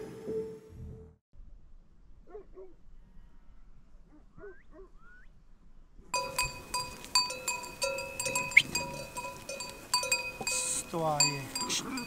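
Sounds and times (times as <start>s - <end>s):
sheep bells clanking: 6.2s - 12.0s.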